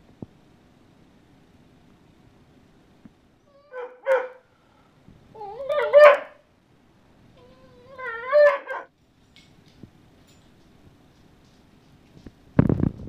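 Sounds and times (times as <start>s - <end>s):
dog whining barks: 3.5s - 4.5s, 5.4s - 6.4s, 7.4s - 8.9s.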